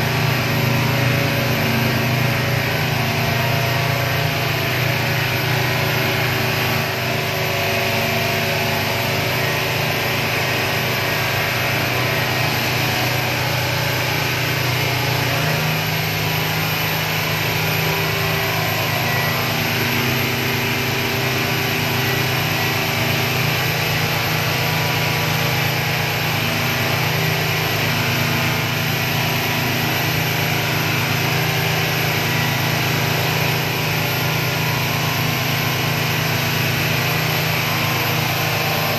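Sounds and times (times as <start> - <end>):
motorboat engine humming: 25.8 - 38.9.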